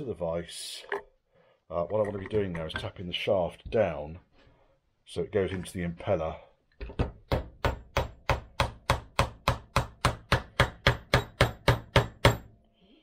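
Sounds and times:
hammer tapping metal: 7.2s - 12.5s.

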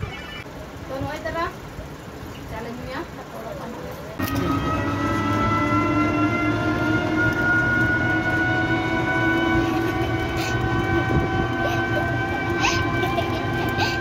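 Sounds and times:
road rumble: 0.0s - 14.0s
rickshaw motor whining: 4.1s - 14.0s.

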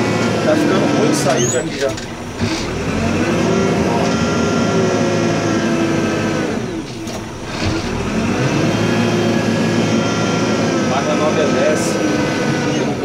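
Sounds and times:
diesel engine revving: 0.0s - 13.0s.

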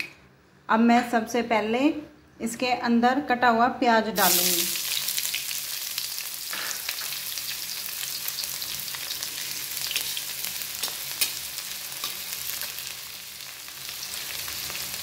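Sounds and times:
onion sizzling in oil: 4.2s - 15.0s.

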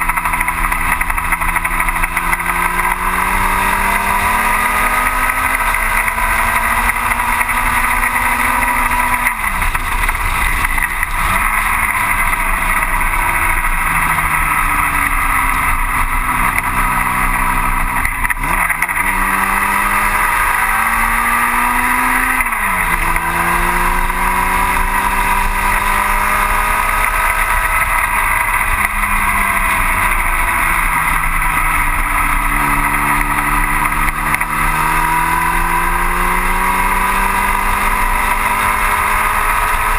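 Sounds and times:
racing car engine revving: 0.0s - 39.9s
steady rushing noise: 0.0s - 39.9s.

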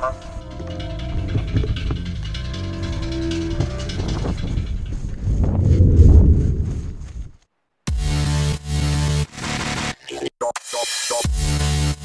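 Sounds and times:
held tone over bass music: 0.0s - 6.8s.

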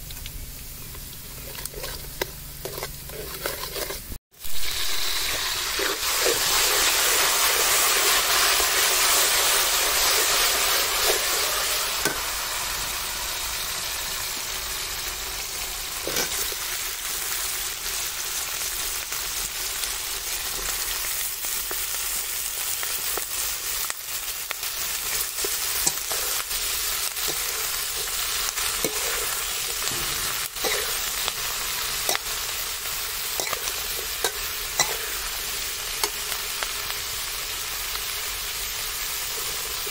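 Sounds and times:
oil sizzling in wok: 0.0s - 39.9s
metal spatula scraping wok: 1.3s - 12.8s, 15.9s - 16.7s, 24.6s - 36.4s.

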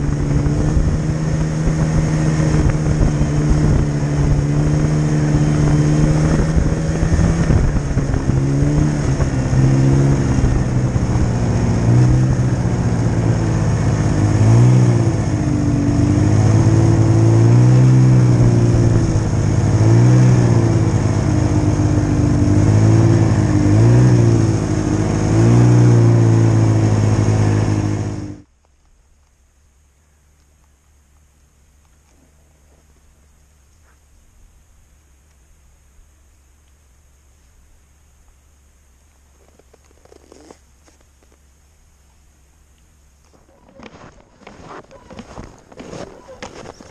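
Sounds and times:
snowmobile engine revving: 0.0s - 28.4s, 43.3s - 46.9s
track and wind noise: 0.0s - 28.5s, 42.8s - 46.9s.

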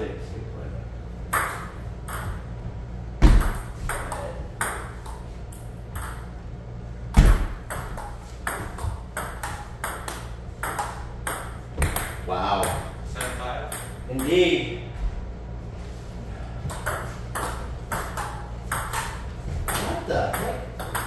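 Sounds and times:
ping-pong ball ticking off paddles: 1.3s - 2.5s, 7.6s - 14.4s, 16.7s - 21.0s
heavier thumps: 3.2s - 4.9s, 7.1s - 12.2s.

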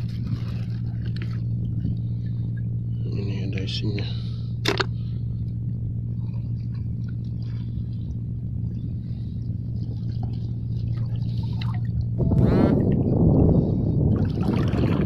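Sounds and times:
shallow water sloshing: 0.0s - 15.0s
wind on microphone: 8.1s - 15.0s.

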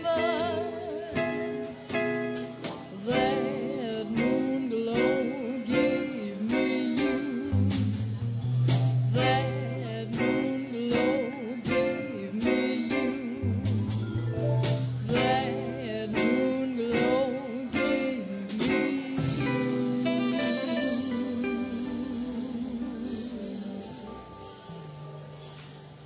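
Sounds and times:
drums: 0.0s - 26.0s
guitar: 0.0s - 26.0s
upright bass: 0.0s - 26.0s
melody with vibrato: 8.9s - 26.0s.

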